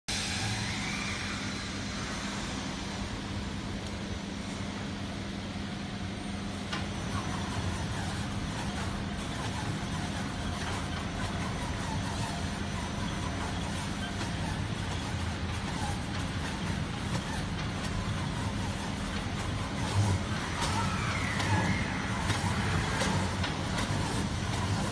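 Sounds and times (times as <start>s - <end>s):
stretch wrapper motor hum: 6.7s - 24.9s.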